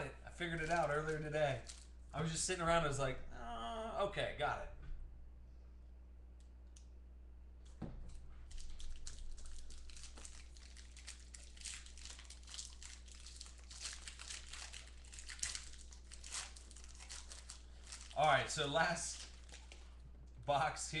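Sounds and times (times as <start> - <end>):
foil wrapper crinkling and tearing: 0.4 - 1.9, 8.4 - 20.0
soft knock: 7.8 - 8.1.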